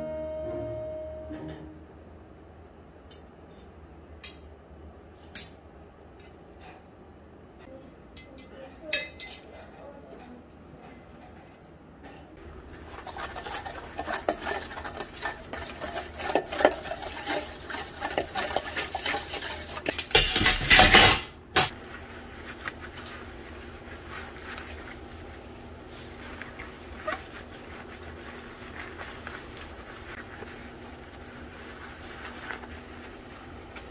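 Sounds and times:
kitchen utensils clinking: 7.6 - 9.7, 12.6 - 21.8.

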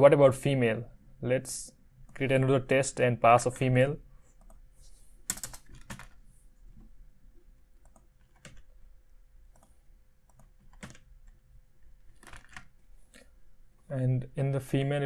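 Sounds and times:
keyboard typing: 5.3 - 6.9, 7.8 - 8.8, 9.5 - 11.4, 12.0 - 12.8.

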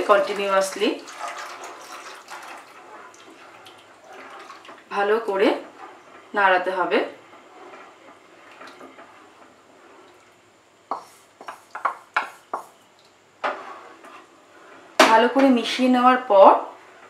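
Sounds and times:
liquid pouring into a pan: 0.0 - 4.9.

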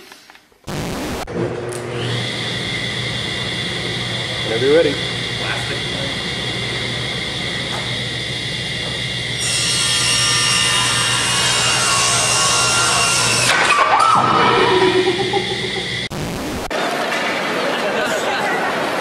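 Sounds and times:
table saw humming: 1.3 - 16.1
saw blade cutting wood: 9.4 - 14.1.

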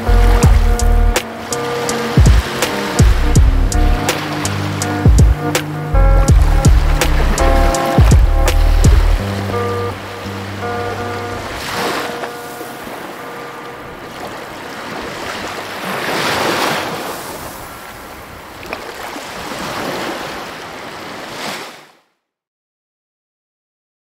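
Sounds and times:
ocean waves washing in: 0.0 - 22.0.

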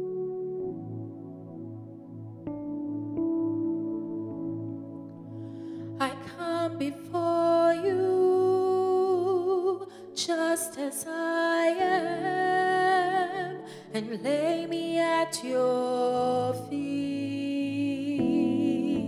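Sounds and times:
soft sustained backing music: 0.0 - 19.0
woman singing gospel: 6.0 - 19.0.

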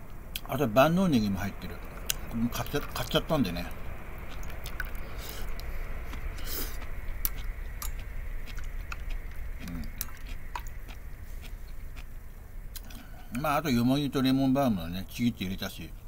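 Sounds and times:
low background rumble: 0.0 - 16.0
person chewing: 1.7 - 13.4.

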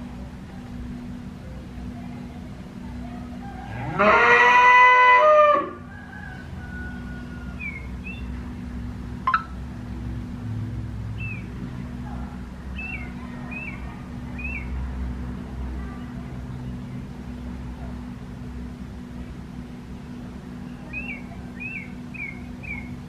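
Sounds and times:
cow mooing: 3.7 - 5.8
faint high bird chirps: 7.3 - 8.4, 11.2 - 11.6, 12.7 - 14.8, 20.6 - 23.0.

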